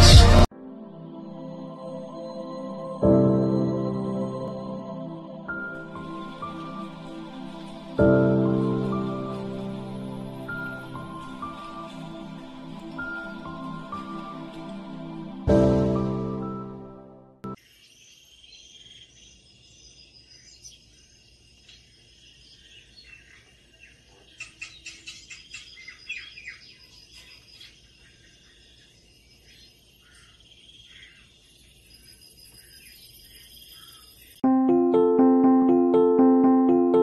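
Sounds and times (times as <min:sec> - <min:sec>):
small birds chirping on television: 0:05.6 - 0:14.8, 0:17.6 - 0:34.4.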